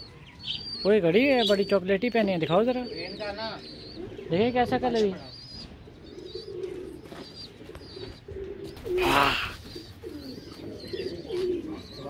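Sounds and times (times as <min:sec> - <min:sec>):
pigeons cooing: 0:00.0 - 0:12.0
loud short bird call: 0:08.8 - 0:09.8.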